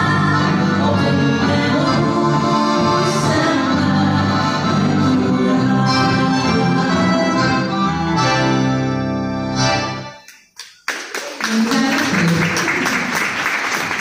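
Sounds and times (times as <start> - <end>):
live band held chord: 0.0 - 10.2
audience applause: 10.4 - 14.0.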